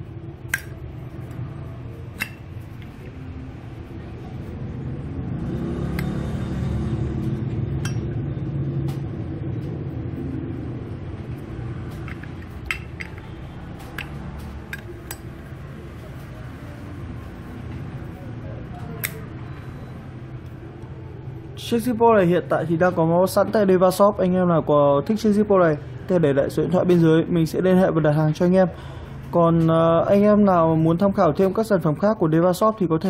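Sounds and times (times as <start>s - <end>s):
lighter metallic clicks: 19.0s - 19.2s.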